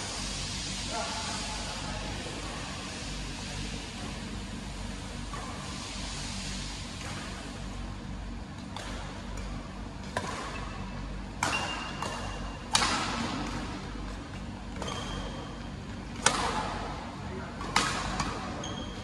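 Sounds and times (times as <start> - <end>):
low hum of hall: 0.0 - 19.0
rackets hitting shuttlecock: 8.6 - 13.7, 16.1 - 16.8, 17.6 - 18.5
short high shoe squeaks: 14.8 - 15.4, 18.6 - 19.0.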